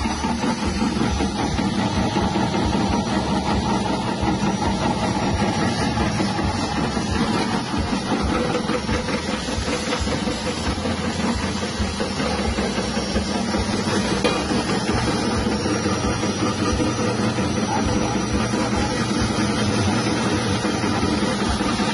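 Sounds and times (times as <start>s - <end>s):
potato slicing machine humming: 0.0s - 21.9s.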